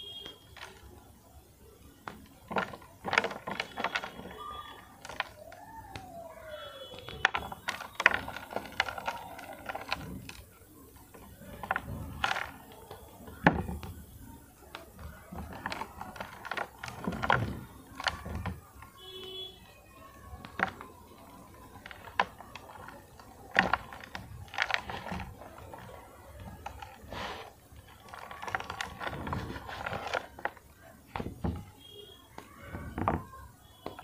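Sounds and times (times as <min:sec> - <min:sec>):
chalk crunching by hand: 0:26.6 - 0:30.6.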